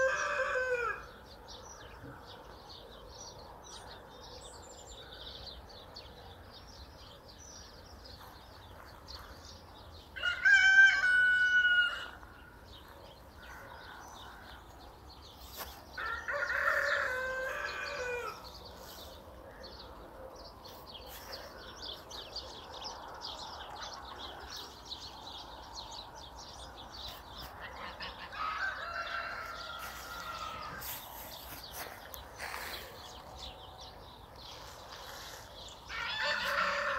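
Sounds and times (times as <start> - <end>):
rooster crowing: 0.0 - 1.1, 10.2 - 12.2, 16.0 - 18.5, 28.2 - 30.9, 35.9 - 36.9
small birds chirping: 11.9 - 36.9.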